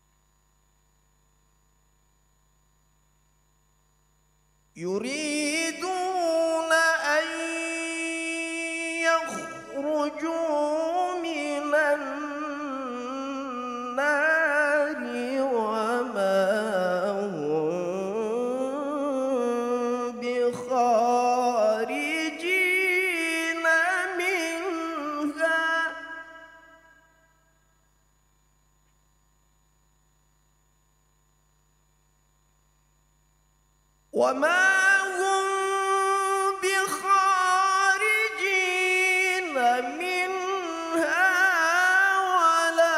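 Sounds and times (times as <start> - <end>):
man reciting in melodic chant: 4.8 - 26.6, 34.2 - 42.9.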